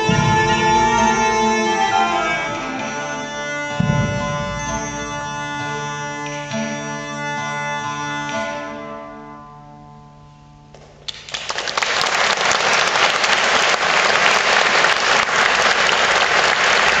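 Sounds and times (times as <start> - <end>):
ensemble holding final chord: 0.0 - 7.5
audience applause: 11.1 - 17.0.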